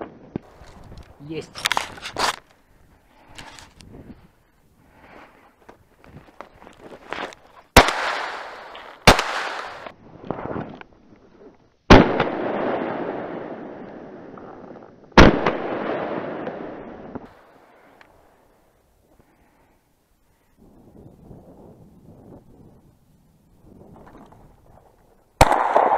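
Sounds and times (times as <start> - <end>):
shotgun shots echoing: 7.8 - 9.9, 11.9 - 13.8, 15.2 - 16.8, 25.4 - 25.9.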